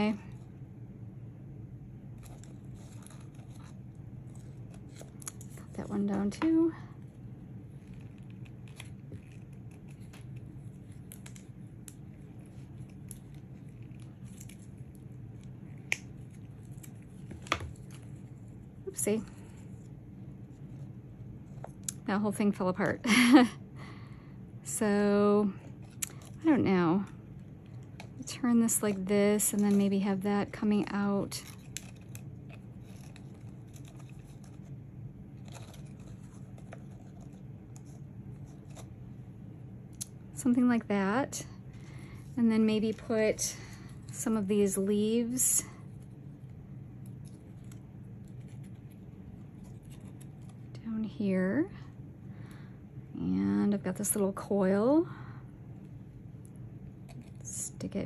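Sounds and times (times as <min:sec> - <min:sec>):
low room hum: 0:00.0 - 0:58.0.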